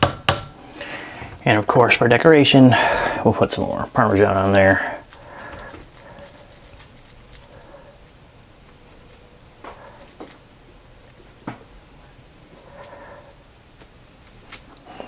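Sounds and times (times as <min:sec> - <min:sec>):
cheese shaker patter: 0:02.9 - 0:11.5, 0:12.2 - 0:14.9.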